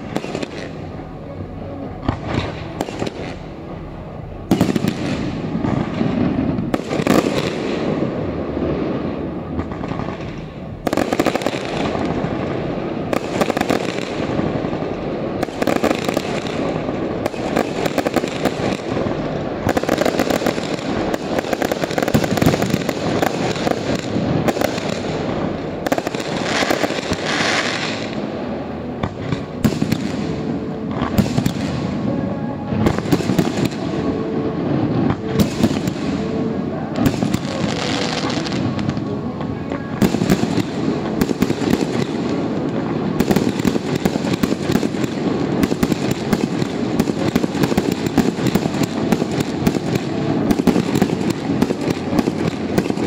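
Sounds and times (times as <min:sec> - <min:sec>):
fireworks bangs and crackling: 0:00.0 - 0:53.0.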